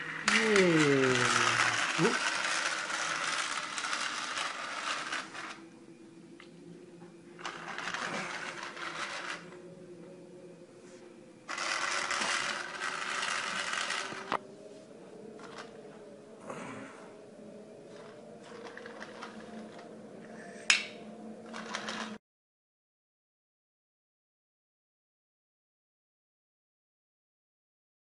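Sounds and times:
toy train motor whirring: 0:00.0 - 0:05.6, 0:07.4 - 0:09.6, 0:11.5 - 0:14.4, 0:15.4 - 0:15.7, 0:18.0 - 0:19.9, 0:21.4 - 0:22.2
wheels rattling on plastic track: 0:00.0 - 0:05.6, 0:07.4 - 0:09.5, 0:11.5 - 0:14.4, 0:15.4 - 0:15.7, 0:18.0 - 0:19.9, 0:21.5 - 0:22.2.

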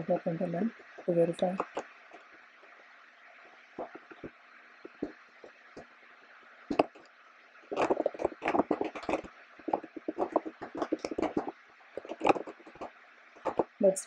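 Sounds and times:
typing on computer keyboard: 0:07.7 - 0:13.8.

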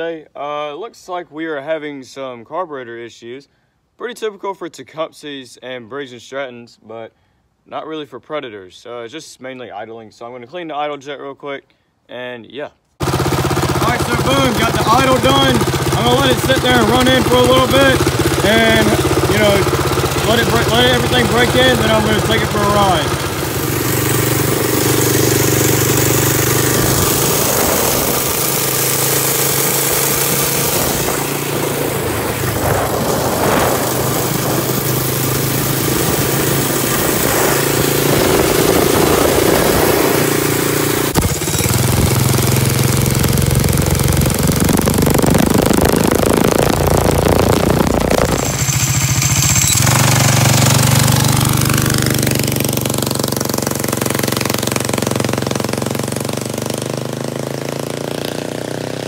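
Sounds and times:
quad bike engine revving: 0:13.0 - 0:59.0.

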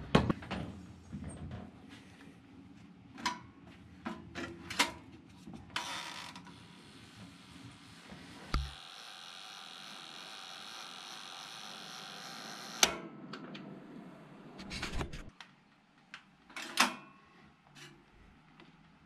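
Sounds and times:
toaster timer dial humming: 0:08.5 - 0:13.0.

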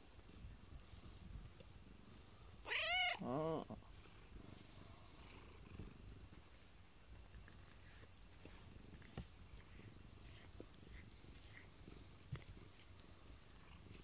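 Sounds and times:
cat meowing: 0:02.6 - 0:03.6
cat purring: 0:03.2 - 0:06.3, 0:07.5 - 0:14.0.

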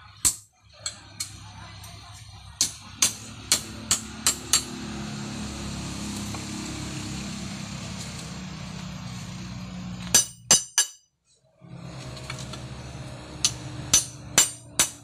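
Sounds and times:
hammer striking blade on anvil: 0:02.6 - 0:04.8, 0:10.0 - 0:11.1, 0:13.4 - 0:15.0.

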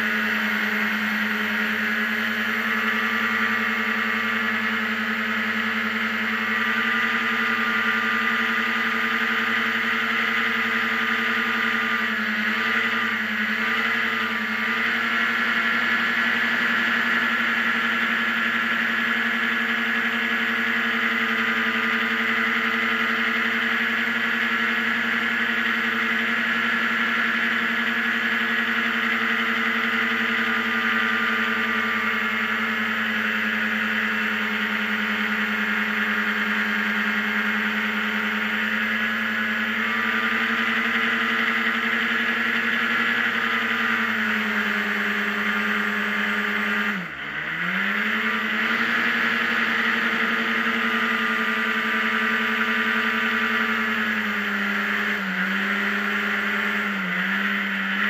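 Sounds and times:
hovercraft engine at high throttle: 0:00.0 - 0:58.0.

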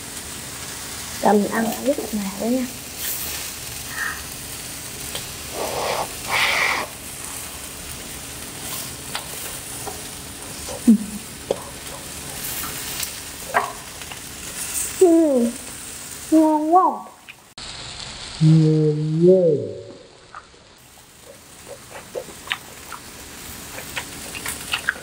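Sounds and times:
beef sizzling on grill plate: 0:00.0 - 0:18.7, 0:20.2 - 0:25.0
chopsticks clicking on pan: 0:09.1 - 0:10.1.

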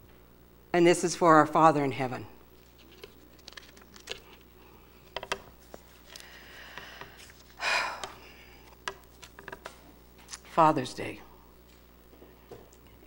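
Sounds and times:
paper rustling: 0:02.6 - 0:07.6, 0:08.6 - 0:10.5
small clicks and knocks: 0:05.1 - 0:05.5, 0:08.0 - 0:09.8.

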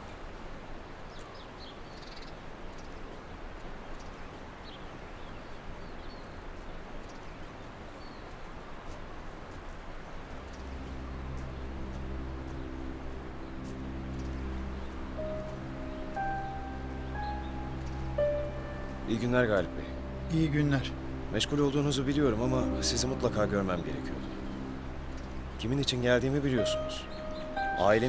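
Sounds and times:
background hiss: 0:00.0 - 0:28.0
birds chirping: 0:10.2 - 0:28.0
music with low held notes: 0:10.2 - 0:28.0.

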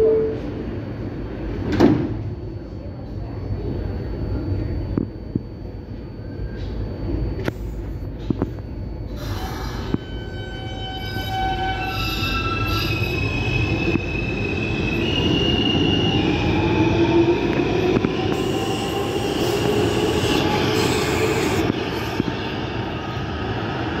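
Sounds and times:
train wheels rumbling on rail: 0:06.6 - 0:24.0
high wheel squeal: 0:09.1 - 0:16.6, 0:18.3 - 0:22.6.

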